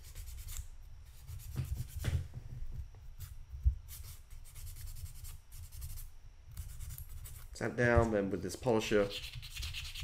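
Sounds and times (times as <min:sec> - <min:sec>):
sandpaper rubbing on plastic: 0:09.0 - 0:10.0.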